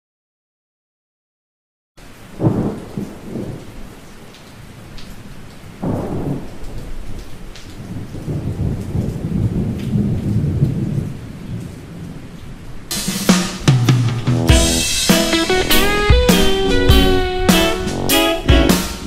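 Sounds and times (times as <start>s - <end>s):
steady rain: 2.0s - 19.0s
thunderclap: 2.4s - 3.7s, 5.8s - 12.4s, 13.0s - 19.0s
low rumble of thunder: 2.4s - 4.0s, 5.7s - 12.9s.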